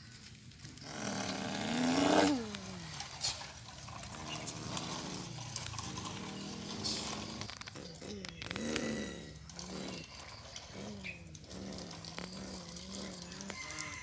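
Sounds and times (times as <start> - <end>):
child imitating truck engine: 0.8 - 3.0.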